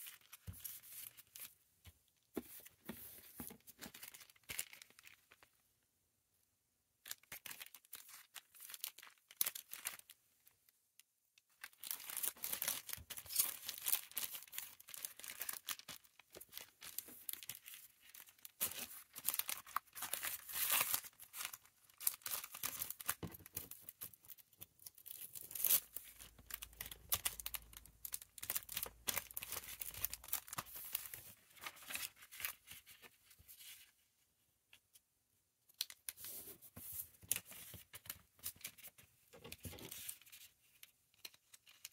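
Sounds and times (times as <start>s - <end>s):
plastic packaging crinkling: 3.6s - 5.5s, 7.1s - 10.2s, 11.5s - 33.2s.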